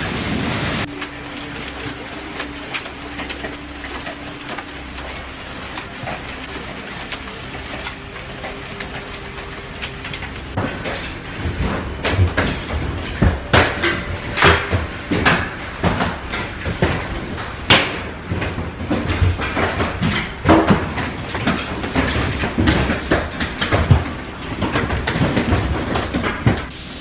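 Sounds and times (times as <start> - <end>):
storm rushing noise: 0.0 - 5.1
hailstones knocking on glass: 0.8 - 26.7.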